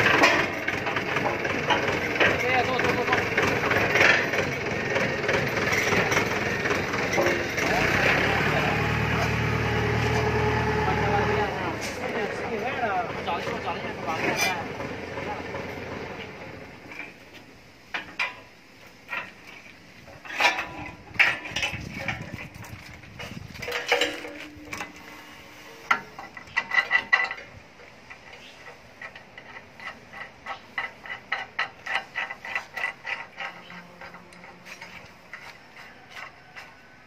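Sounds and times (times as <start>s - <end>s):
metal chain clicks and clanks: 0.0s - 8.2s, 17.9s - 25.1s, 25.9s - 37.0s.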